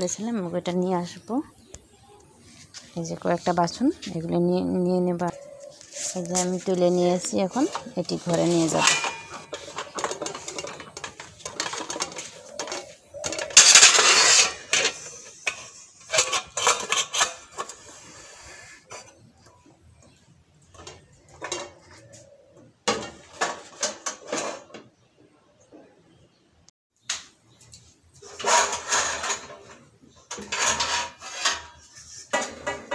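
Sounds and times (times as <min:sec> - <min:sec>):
metal dishes clattering and clinking: 0:07.6 - 0:17.8, 0:20.8 - 0:22.2, 0:22.9 - 0:24.9, 0:28.2 - 0:32.9.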